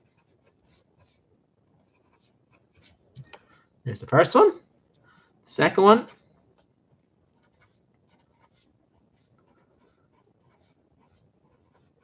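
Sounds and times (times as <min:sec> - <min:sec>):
marker scratching on paper: 0:00.0 - 0:03.0, 0:07.3 - 0:12.0.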